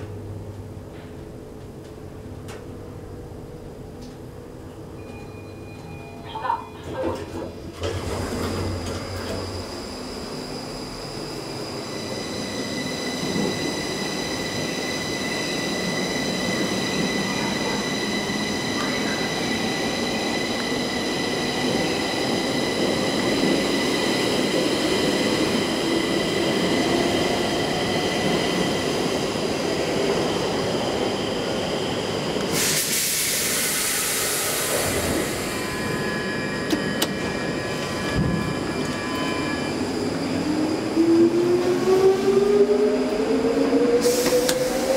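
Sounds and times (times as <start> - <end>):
loud hiss: 32.5 - 35.5.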